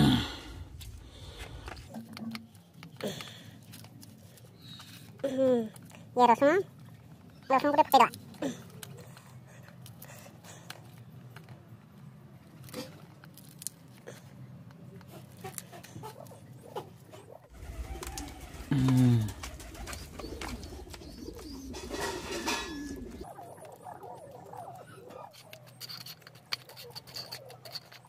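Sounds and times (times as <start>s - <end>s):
bird cooing: 15.2s - 28.0s.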